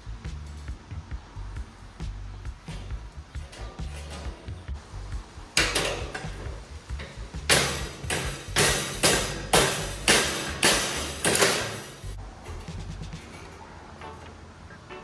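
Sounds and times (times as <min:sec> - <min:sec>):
hammer striking metal rail: 0:07.0 - 0:14.3.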